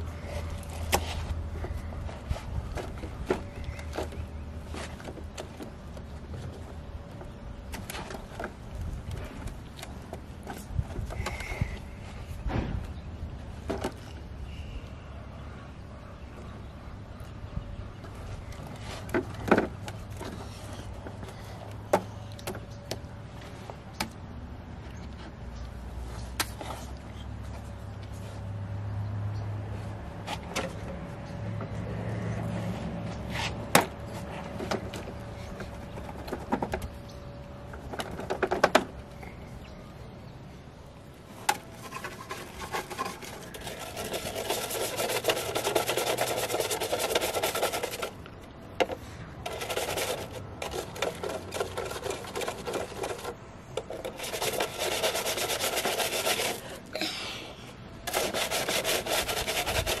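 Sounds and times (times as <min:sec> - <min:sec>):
brush scrubbing plastic: 0:41.7 - 0:48.2, 0:48.8 - 0:56.8, 0:58.1 - 1:00.0.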